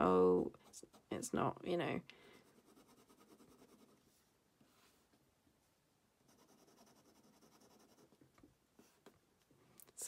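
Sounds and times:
fountain pen scratching on paper: 6.3s - 8.2s.

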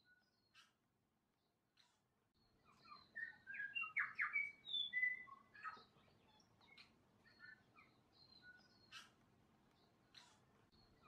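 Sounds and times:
bird singing whistled notes: 2.8s - 5.7s.

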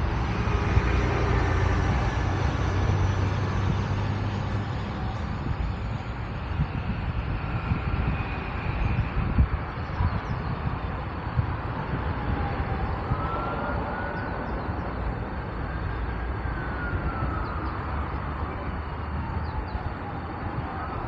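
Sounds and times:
road traffic: 0.0s - 21.0s
siren wailing: 11.5s - 21.0s.

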